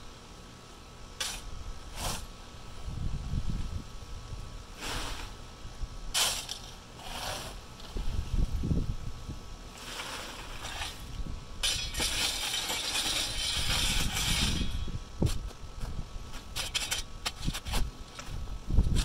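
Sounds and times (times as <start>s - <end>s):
shovel scraping dirt and rock: 1.2s - 2.4s, 4.8s - 5.4s, 6.1s - 8.2s, 9.7s - 15.5s, 16.3s - 19.0s
rocks rattling on sifting screen: 6.1s - 8.2s, 9.7s - 15.5s
dirt pouring through screen: 9.7s - 11.1s.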